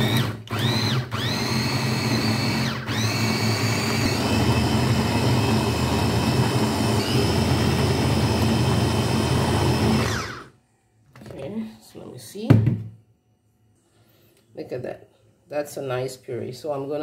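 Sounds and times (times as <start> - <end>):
food processor motor whine: 0.0 - 10.6.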